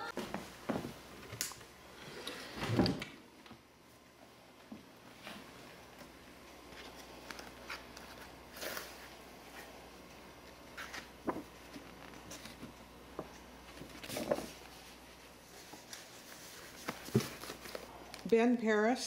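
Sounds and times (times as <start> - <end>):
paper rustling: 10.4 - 17.9.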